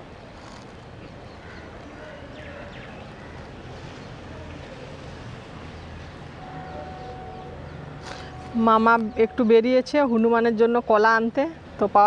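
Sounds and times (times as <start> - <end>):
outdoor background noise: 0.0 - 12.0
faint steady tone: 4.3 - 11.0.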